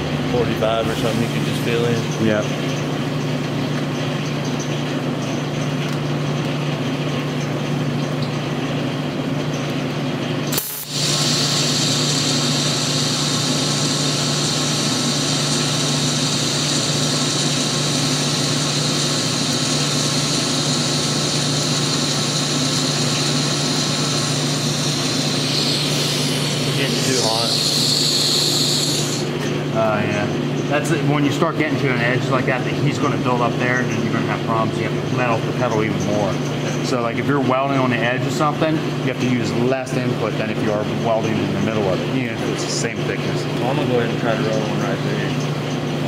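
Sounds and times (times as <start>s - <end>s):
welding arc hissing buzz: 10.5s - 29.4s.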